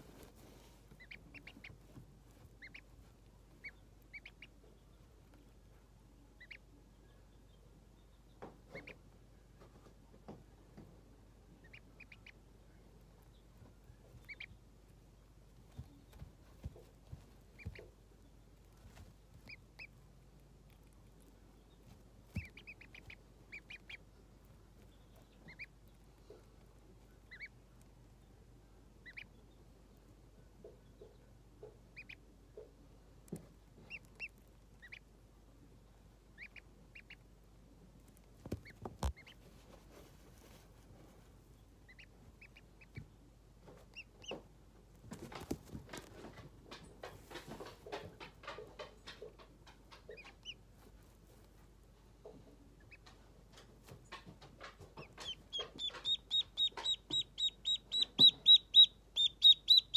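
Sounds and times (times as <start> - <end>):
rustling on bedding: 0.0 - 3.6, 38.4 - 41.6
ducklings peeping: 0.0 - 10.3, 11.1 - 40.8, 41.4 - 59.9.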